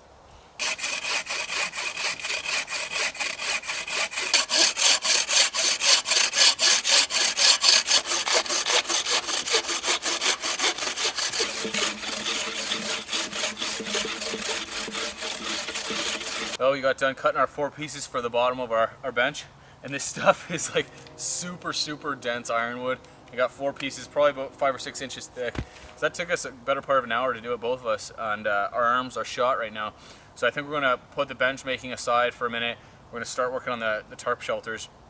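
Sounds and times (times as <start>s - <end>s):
bucksaws sawing through log: 0.6s - 16.6s.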